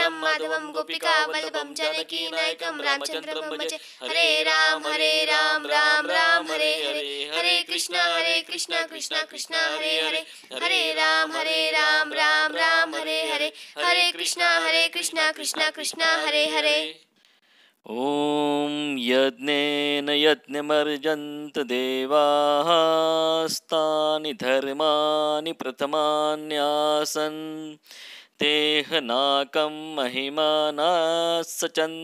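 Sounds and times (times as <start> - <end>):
woman singing a hymn: 0.0 - 16.9
singer breathing: 3.8 - 4.1, 10.2 - 10.6, 13.5 - 13.8, 17.1 - 17.8, 27.8 - 28.4.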